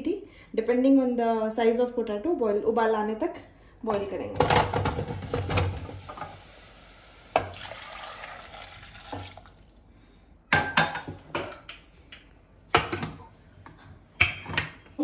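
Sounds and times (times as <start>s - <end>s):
water pouring into a pot: 4.8s - 9.9s.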